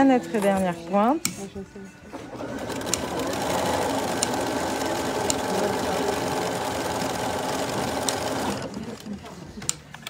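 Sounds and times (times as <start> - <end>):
sewing machine stitching: 2.2 - 9.1.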